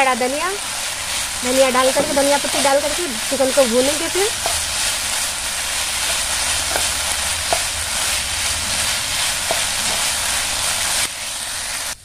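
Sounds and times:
meat sizzling in a pan: 0.0s - 12.0s
wooden spatula stirring: 1.0s - 11.0s
spatula tapping a pan: 4.4s - 4.7s, 6.0s - 7.7s, 9.4s - 10.1s.

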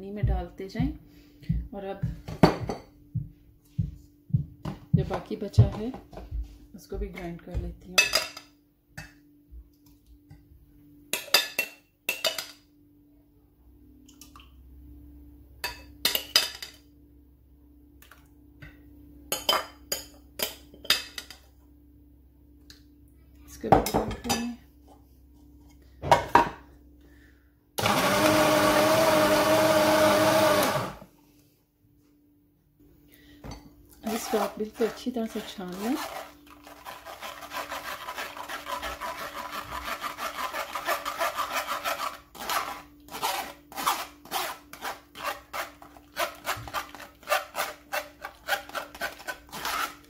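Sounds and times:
electric mixer grinder running: 27.8s - 31.0s
metal spoon scraping glass bowl: 34.1s - 50.0s.

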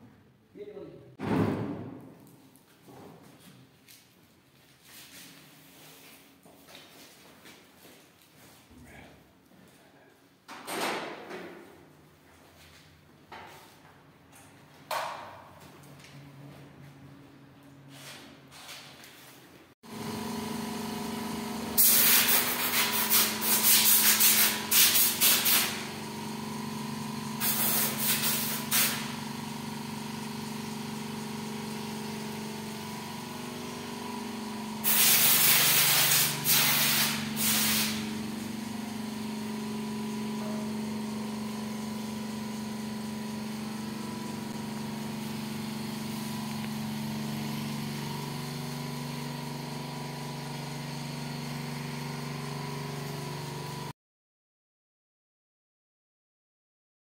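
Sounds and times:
air compressor motor humming: 19.8s - 53.9s
compressed air hissing blasts: 21.8s - 25.9s, 27.4s - 29.1s, 34.8s - 38.2s.

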